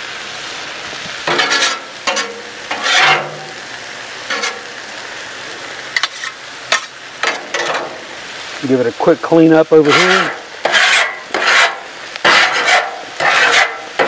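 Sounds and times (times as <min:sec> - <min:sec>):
vegetables sizzling on a griddle: 0:00.0 - 0:14.0
metal spatula scraping griddle: 0:01.2 - 0:04.9, 0:06.0 - 0:08.2, 0:09.8 - 0:14.0.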